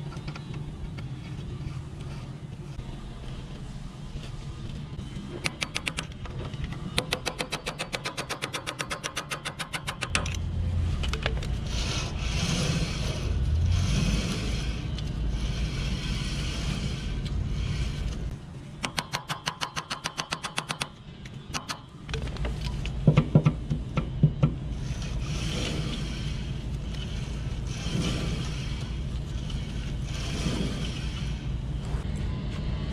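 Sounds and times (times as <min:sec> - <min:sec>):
mechanical rubbing noise: 0:00.0 - 0:18.4, 0:24.7 - 0:32.1.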